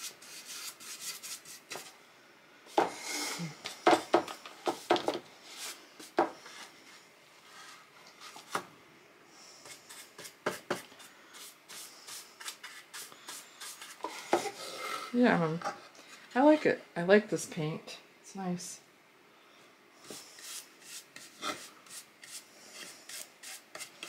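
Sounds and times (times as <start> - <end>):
paintbrush brushing on wood: 20.1 - 23.9.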